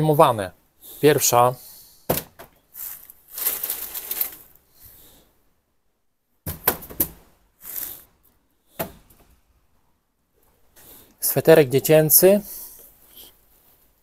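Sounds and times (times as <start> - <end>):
plastic bag rustling: 2.7 - 4.7.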